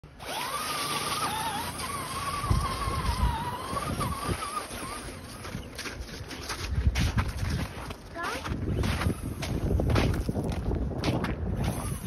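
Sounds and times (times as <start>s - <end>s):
toy car electric motor whining: 0.1s - 5.8s, 8.7s - 9.7s, 11.6s - 12.0s.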